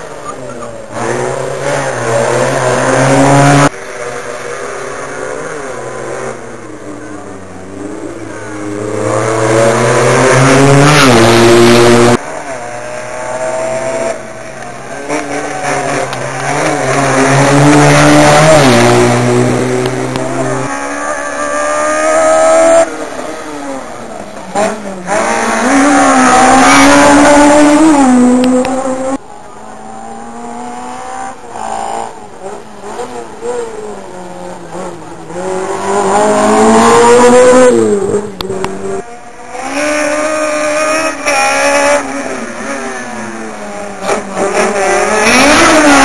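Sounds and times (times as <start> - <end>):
rally car engines revving: 0.0 - 46.0.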